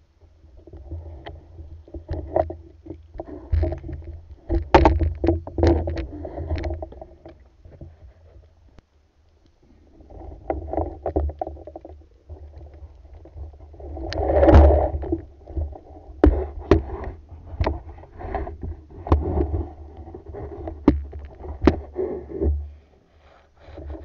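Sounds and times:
low water rumble: 0:00.0 - 0:24.0.

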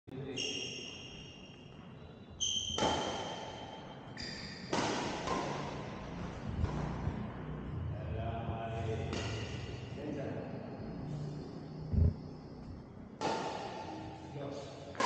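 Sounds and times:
shoes squeaking on court floor: 0:00.3 - 0:05.6
racket hitting shuttlecock: 0:02.4 - 0:07.4, 0:09.0 - 0:09.9, 0:13.2 - 0:14.3.

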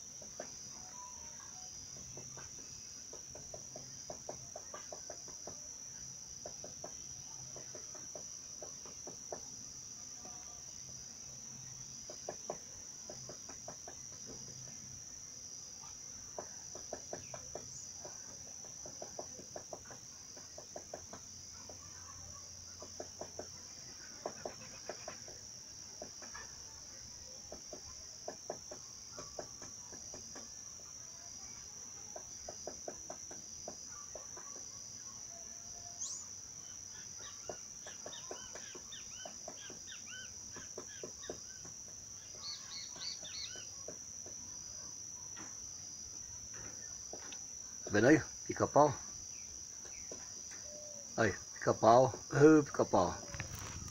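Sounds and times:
insect chorus: 0:00.0 - 0:53.9
woodpecker tapping: 0:02.0 - 0:05.7, 0:06.4 - 0:09.5, 0:12.0 - 0:14.6, 0:16.3 - 0:21.8, 0:22.8 - 0:25.4, 0:27.5 - 0:30.5, 0:37.2 - 0:44.4
bird chirps: 0:36.0 - 0:43.8.

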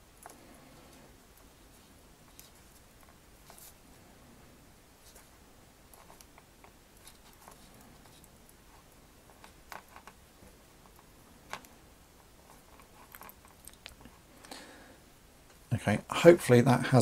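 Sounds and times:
fingers twisting wire clicks: 0:12.7 - 0:14.1.

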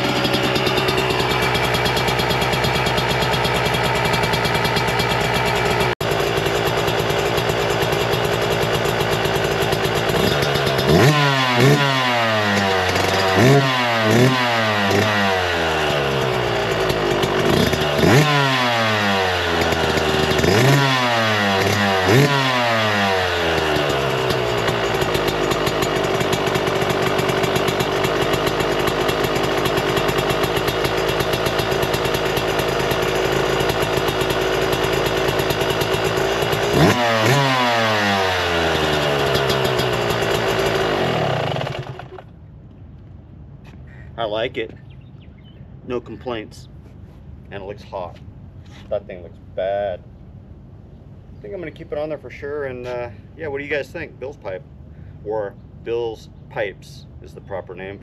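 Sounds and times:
two-stroke motorcycle engine revving: 0:00.0 - 0:42.4.

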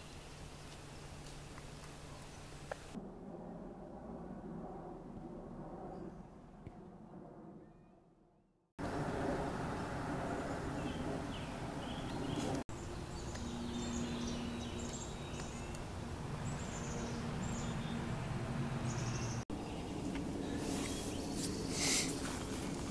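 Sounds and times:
birds chirping: 0:10.2 - 0:22.9.

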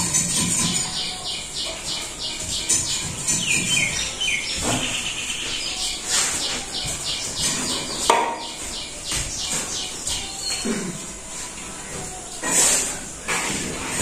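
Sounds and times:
bird chirping: 0:00.0 - 0:10.8.

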